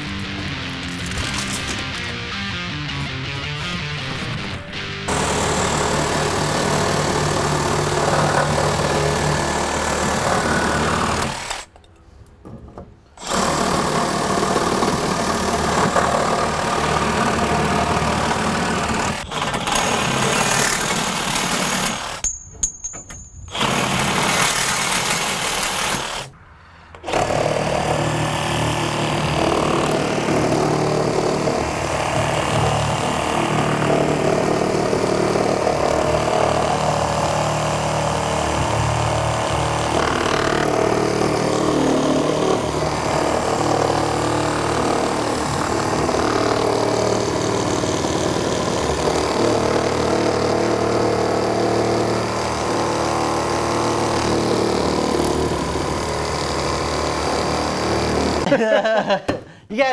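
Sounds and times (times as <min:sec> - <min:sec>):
reciprocating saw cutting wood: 0:05.1 - 0:11.7, 0:13.2 - 0:22.2, 0:23.5 - 0:26.3.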